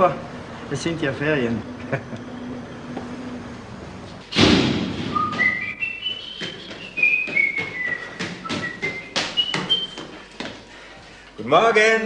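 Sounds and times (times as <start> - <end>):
loud thud: 4.2 - 5.7
man whistling a tune: 5.1 - 10.1
footsteps on tiled stairs: 5.2 - 11.3.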